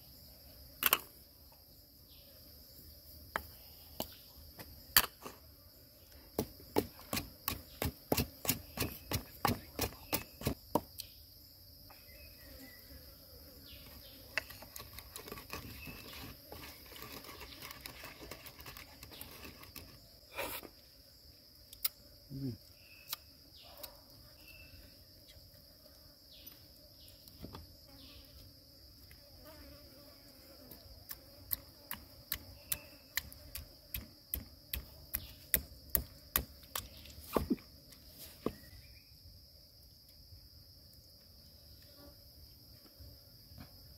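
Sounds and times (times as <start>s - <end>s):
high insect drone: 0.0s - 43.9s
pestle pounding in a mortar: 6.4s - 10.8s.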